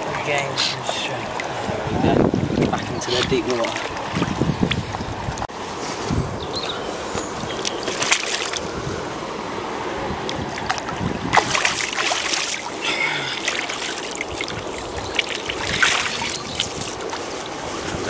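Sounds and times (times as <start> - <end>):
wind on microphone: 0.0 - 12.8, 13.6 - 18.0
lake water moving at bank: 0.0 - 18.0.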